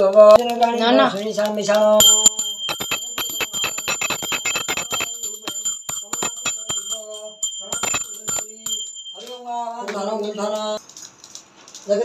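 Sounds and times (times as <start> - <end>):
hand bell ringing rapidly: 2.0 - 9.8.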